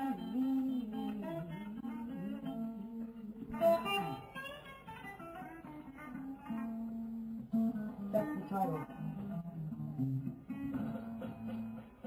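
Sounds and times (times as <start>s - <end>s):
guitar picking notes: 0.0s - 12.0s.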